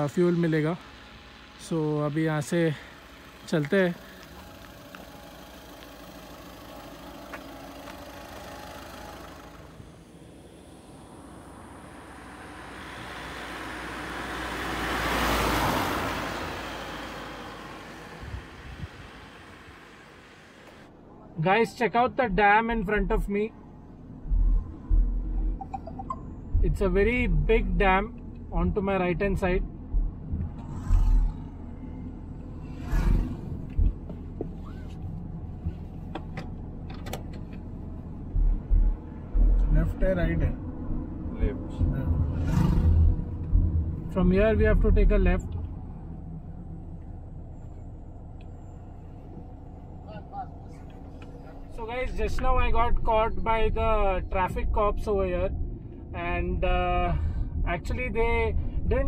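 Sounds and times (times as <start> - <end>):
vehicle passing by: 0.0 - 20.9, 26.4 - 36.0, 37.6 - 52.7
short low thumps: 23.9 - 35.7, 37.6 - 44.4.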